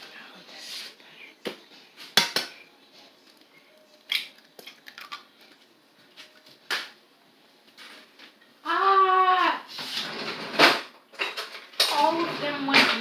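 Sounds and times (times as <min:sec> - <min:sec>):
egg cracking against pot: 0:04.0 - 0:05.4.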